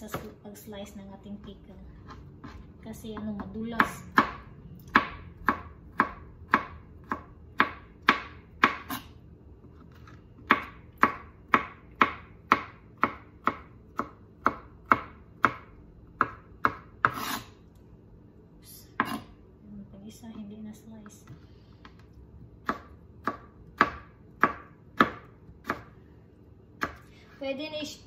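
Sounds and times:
knife chopping on plastic board: 2.0 - 17.5, 19.0 - 19.3, 20.2 - 26.0, 26.8 - 27.1
blade scraping across board: 17.1 - 17.5.

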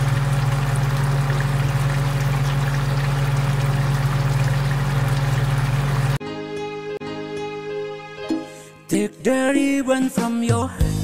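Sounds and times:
gas burner hum: 0.0 - 6.2
sauce bubbling and sizzling: 0.0 - 6.2.

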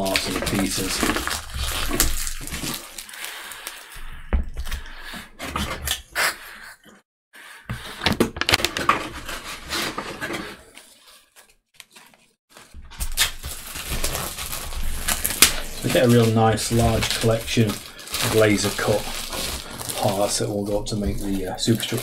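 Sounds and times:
plastic wrap rustling: 0.0 - 3.9, 8.4 - 22.0.

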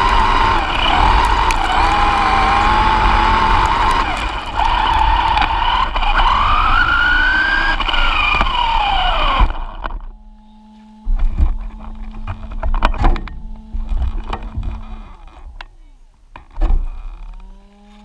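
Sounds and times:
toy car motor whining: 0.0 - 12.7
rumble from bumps: 0.0 - 18.0.

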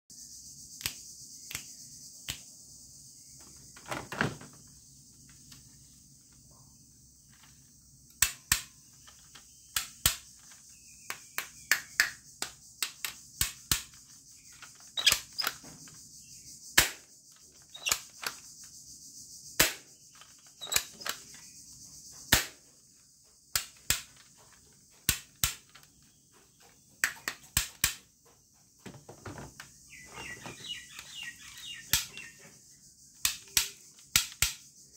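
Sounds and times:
steady high-pitched hiss: 0.1 - 34.9
plastic toy guns clicking: 33.2 - 34.6.

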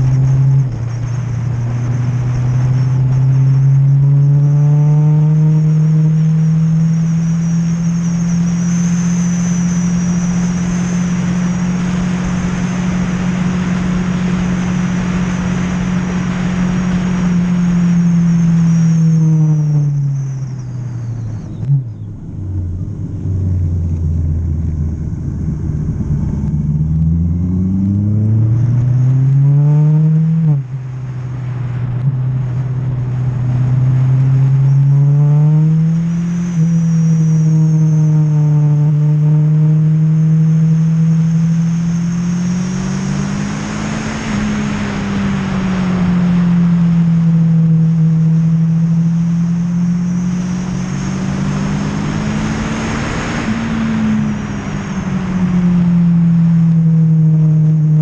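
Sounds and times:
motorcycle engine revving: 0.0 - 58.0
wind rush on microphone: 50.7 - 56.8.

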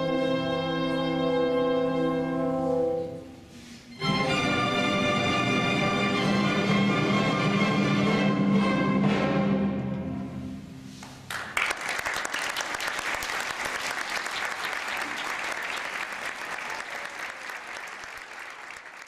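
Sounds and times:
audience applause: 11.3 - 19.0.

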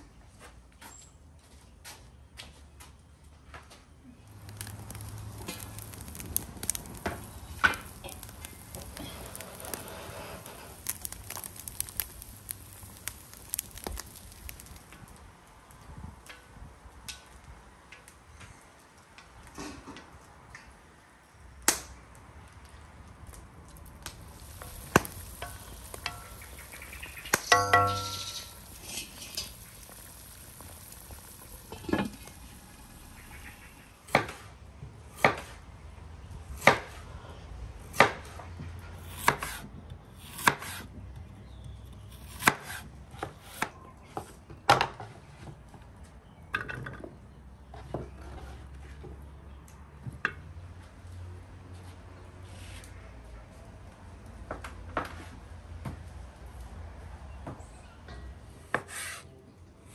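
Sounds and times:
meat sizzling in a pan: 4.4 - 14.9, 24.2 - 33.8
metal clinks: 27.5 - 29.5
metallic ring: 27.5 - 29.5.

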